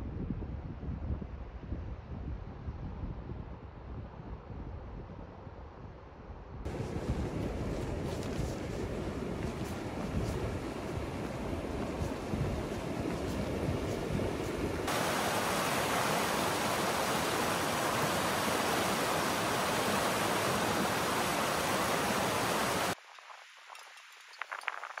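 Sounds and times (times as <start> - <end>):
wind rumble on microphone: 0.0 - 23.0
stream rushing over stones: 6.7 - 23.7.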